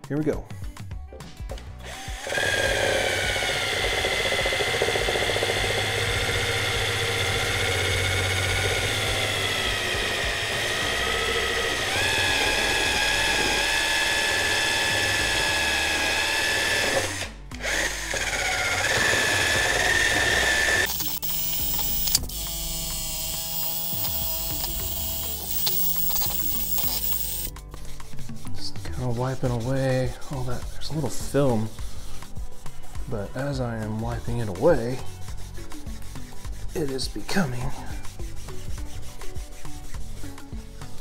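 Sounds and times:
cordless drill motor whine: 1.8 - 27.5
buffing pad scrubbing metal: 22.9 - 41.0.

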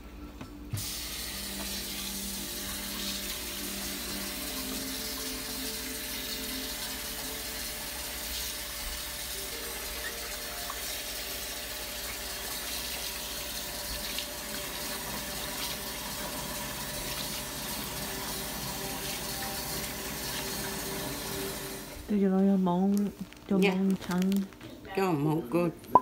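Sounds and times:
faucet running into a plastic bowl: 1.4 - 21.9.

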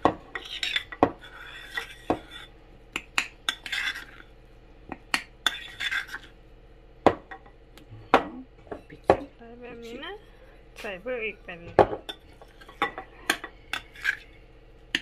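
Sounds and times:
spoon scraping through batter: 0.3 - 2.6, 3.4 - 4.3, 5.4 - 6.4, 12.1 - 14.4.

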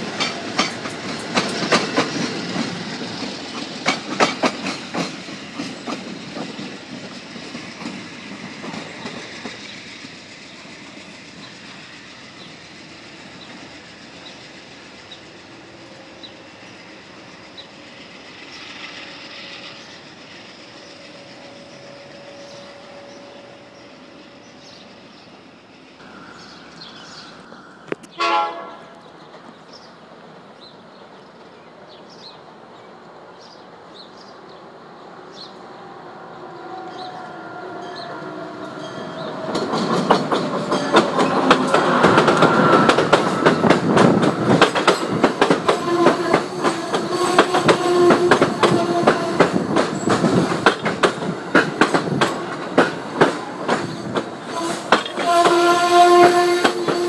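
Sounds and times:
wheels clacking over rail joints: 0.0 - 18.0, 37.8 - 57.0
train passing at speed: 0.0 - 57.0
train horn blast: 21.1 - 24.0, 28.2 - 29.1, 45.6 - 49.6, 54.5 - 57.0.

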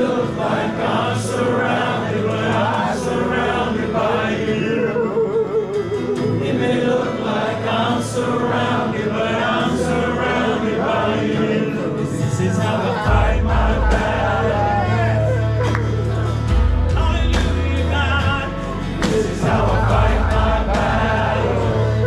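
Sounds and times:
live instrumental backing: 0.0 - 22.0
men singing gospel song: 0.0 - 22.0
low bass notes: 12.2 - 22.0.

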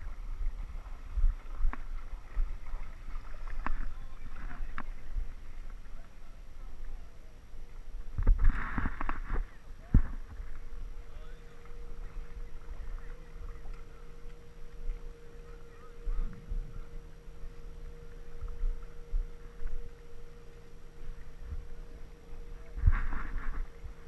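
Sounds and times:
faint steady hum: 0.0 - 24.0
wind rumble on microphone: 0.0 - 24.0.

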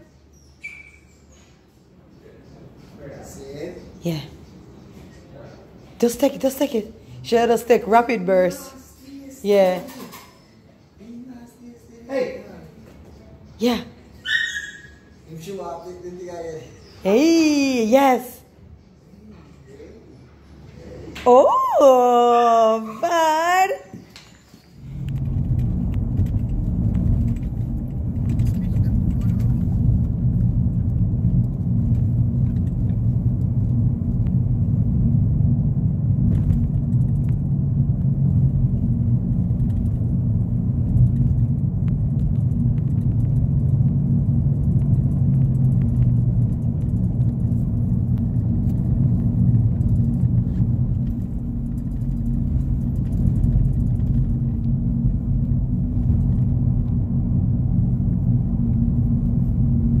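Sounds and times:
car engine and road noise: 24.2 - 60.0.

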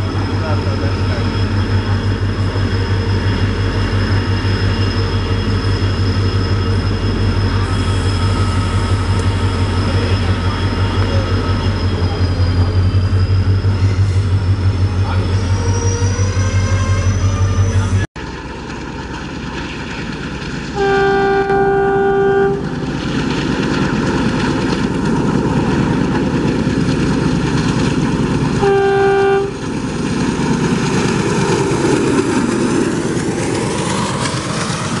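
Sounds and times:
train rumbling past: 0.0 - 35.0
locomotive horn blasts: 20.8 - 22.7, 28.6 - 29.6.

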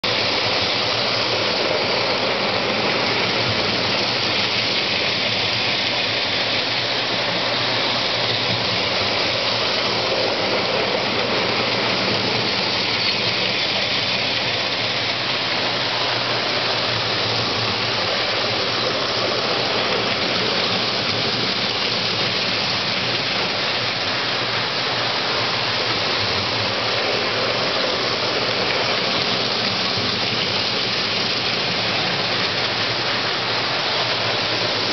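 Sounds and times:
toy train rumbling on tin rails: 0.0 - 34.9.

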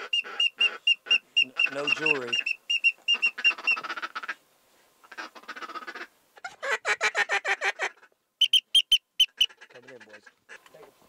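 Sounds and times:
mouth-blown duck call notes: 0.0 - 4.4, 6.8 - 10.2.

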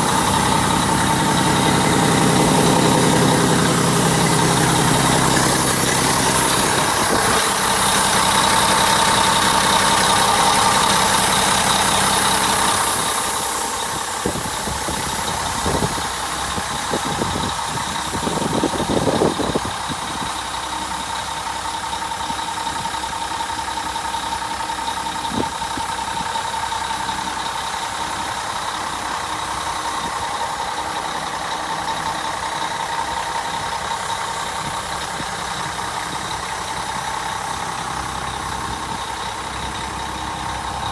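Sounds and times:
diesel truck engine idling: 0.0 - 40.9.

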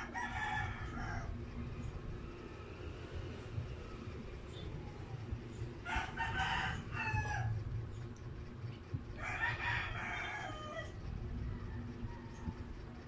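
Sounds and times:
rooster crowing: 0.0 - 1.4, 5.8 - 7.6, 9.2 - 13.0
steady low hum: 0.0 - 13.0.

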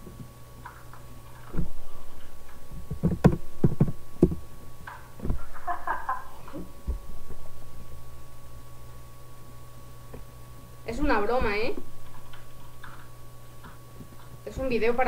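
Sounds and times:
steady low hum: 0.0 - 15.0
irregular knocks and thumps: 2.7 - 4.5, 5.2 - 5.5.

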